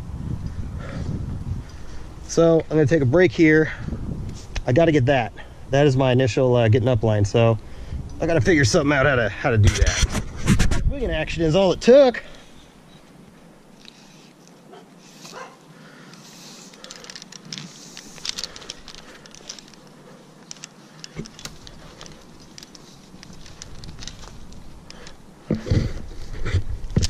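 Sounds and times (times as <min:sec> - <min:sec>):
rope and branches rustling: 0:04.0 - 0:27.0
light clicks of carabiners: 0:12.2 - 0:14.6, 0:15.2 - 0:25.2.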